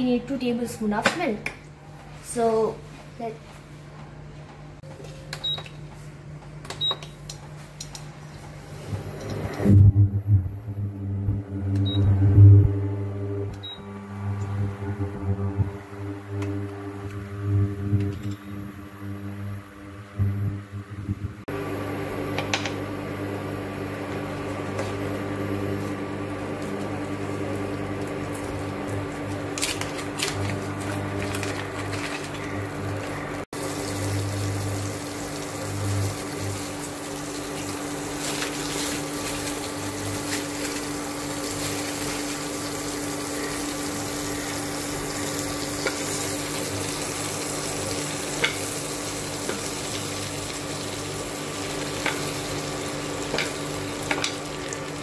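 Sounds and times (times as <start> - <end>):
steady hum: 8.2 - 41.1
butter sizzling in frying pan: 33.6 - 55.0.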